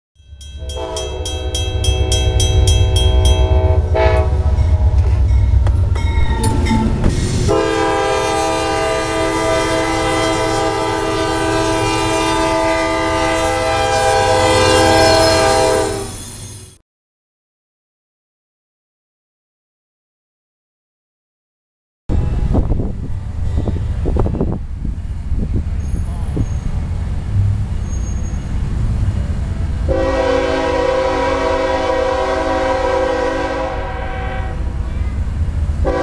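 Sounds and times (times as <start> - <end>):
locomotive air horn blasts: 0.6 - 5.3, 7.4 - 16.2, 29.9 - 34.8.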